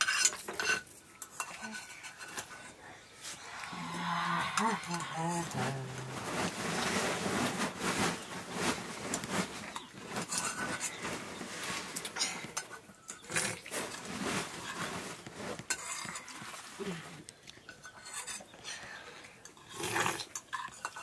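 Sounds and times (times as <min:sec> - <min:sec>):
cutlery clinking on metal bowls: 0:00.0 - 0:02.8, 0:09.7 - 0:11.0, 0:11.9 - 0:14.0, 0:15.6 - 0:16.6, 0:17.6 - 0:18.5, 0:19.4 - 0:21.0.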